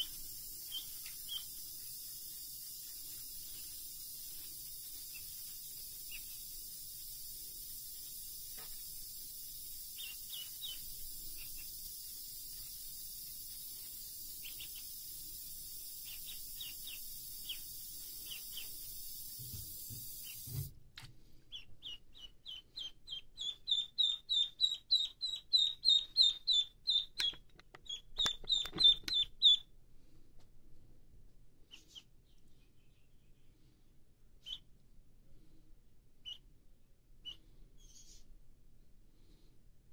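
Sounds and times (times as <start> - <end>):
duckling peeping: 0.0 - 20.5, 21.5 - 29.7, 31.7 - 32.1, 34.4 - 34.7, 36.2 - 36.5, 37.2 - 38.3.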